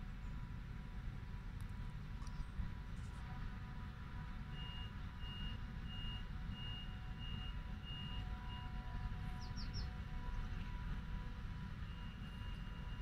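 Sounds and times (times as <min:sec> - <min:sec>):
steady low rumble: 0:00.0 - 0:04.5.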